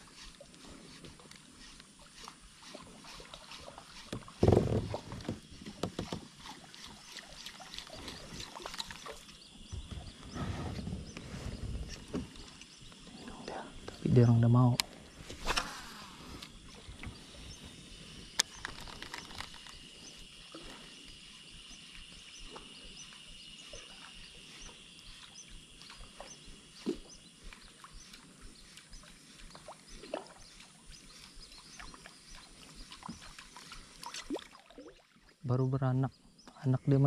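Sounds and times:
high-pitched insect drone: 0.0 - 34.3
faint clicks: 18.3 - 19.8.

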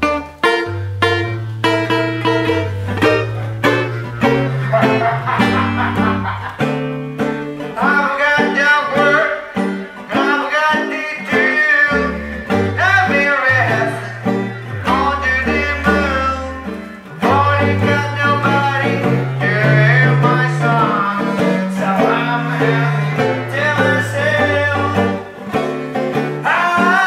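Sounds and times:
bass clarinet low notes: 0.0 - 7.6, 12.1 - 25.8
strummed banjo chords: 0.0 - 27.0
man singing through megaphone: 7.8 - 25.3, 26.4 - 27.0.

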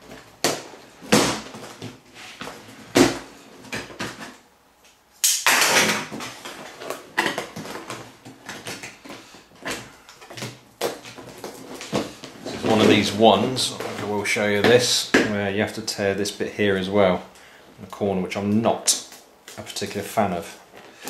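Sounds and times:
cardboard rubbing and sliding: 2.0 - 3.2.

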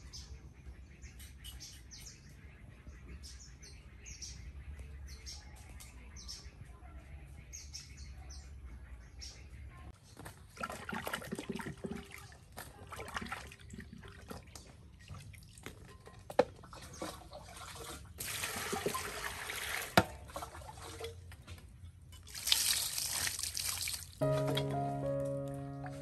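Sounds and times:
water pouring and splashing: 10.5 - 24.8
wet handling sounds: 20.4 - 24.8.

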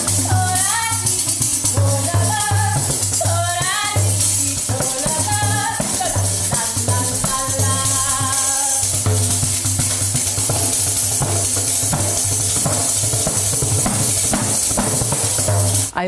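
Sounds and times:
woman singing: 0.0 - 9.0
frame drum jingles rattling: 0.0 - 16.0.

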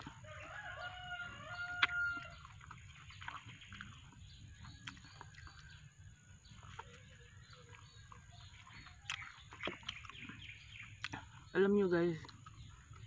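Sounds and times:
rooster crowing: 0.2 - 2.4.

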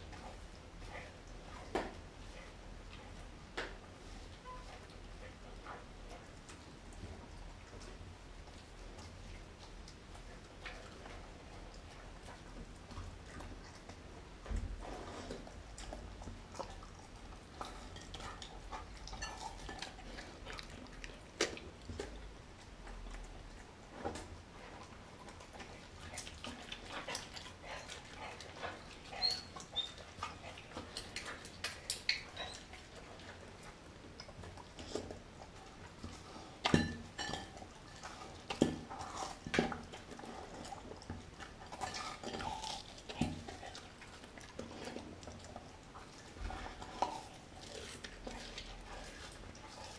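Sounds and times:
dog chewing: 0.0 - 49.9
glass bowl clinking: 36.7 - 37.6.

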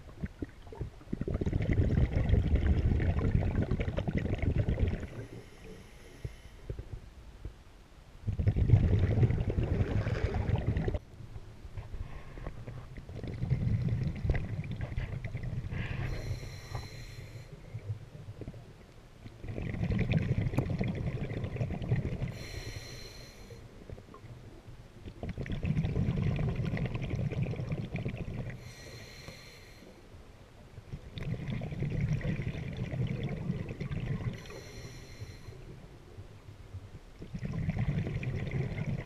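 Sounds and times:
exhaled air bubbling underwater: 0.0 - 7.1, 8.2 - 11.1, 12.5 - 39.0
regulator hissing inhale: 5.2 - 6.8, 15.7 - 17.6, 22.3 - 23.7, 28.6 - 30.1, 34.4 - 35.7.

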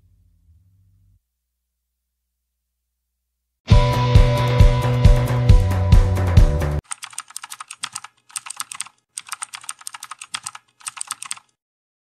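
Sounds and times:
background music: 3.7 - 6.8
keyboard key clicks: 6.8 - 11.5.

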